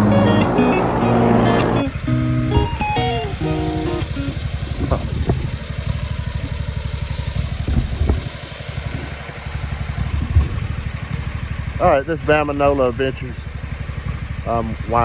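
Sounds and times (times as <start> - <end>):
background music: 0.0 - 4.4
small engine idling: 1.8 - 15.0.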